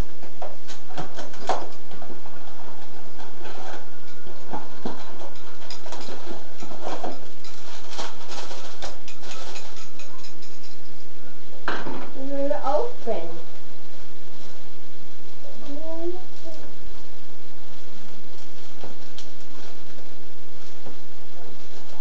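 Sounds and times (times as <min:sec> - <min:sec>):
faint steady hum: 0:00.0 - 0:22.0
paper packaging rustling: 0:03.2 - 0:10.0.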